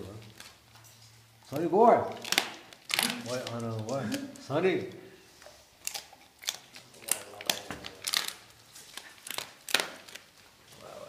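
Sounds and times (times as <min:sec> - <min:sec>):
dog crunching bones: 0:01.4 - 0:04.0, 0:05.6 - 0:10.7.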